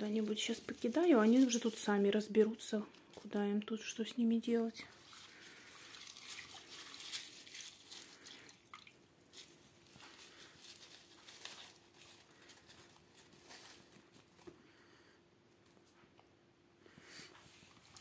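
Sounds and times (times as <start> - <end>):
wet leaves rustling: 0.0 - 2.0, 4.9 - 14.4
faint steady hum: 0.0 - 18.0.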